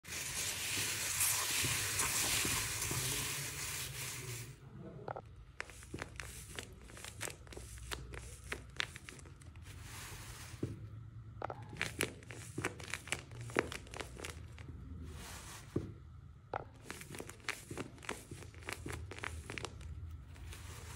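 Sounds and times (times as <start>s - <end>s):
paper crinkling and crackling: 5.4s - 10.7s, 11.6s - 14.7s, 16.8s - 20.9s
hands rustling foam beads: 5.4s - 10.8s, 11.5s - 15.9s, 16.6s - 20.9s.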